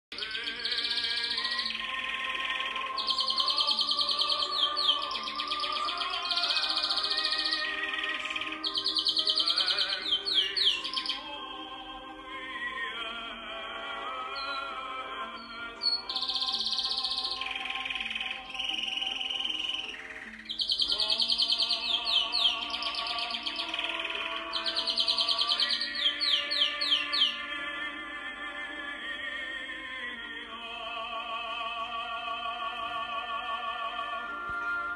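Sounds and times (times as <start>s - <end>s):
canary singing trills: 0.1s - 11.9s, 14.2s - 27.9s
opera singing: 0.1s - 34.9s.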